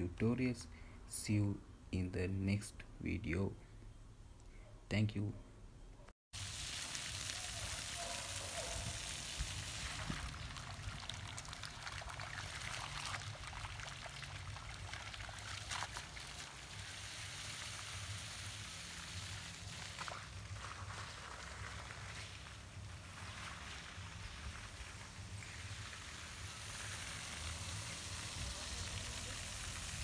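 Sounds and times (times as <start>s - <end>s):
water trickling and splashing: 6.4s - 30.0s.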